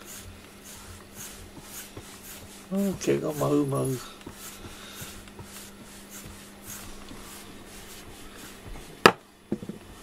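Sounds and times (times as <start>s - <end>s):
brush combing fur: 0.0s - 9.0s.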